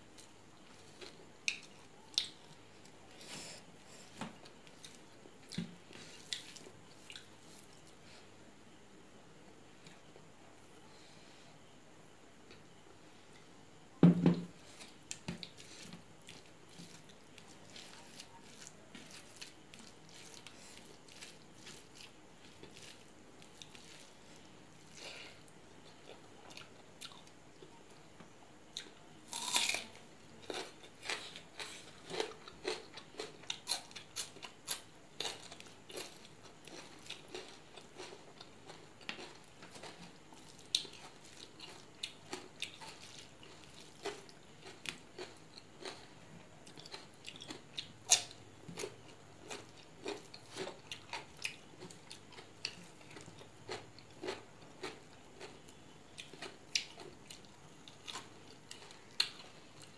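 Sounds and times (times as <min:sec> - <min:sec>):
crunching and chewing: 0:00.2 - 0:08.0, 0:14.6 - 0:28.0, 0:28.6 - 0:59.9
loud thump: 0:14.0 - 0:14.5.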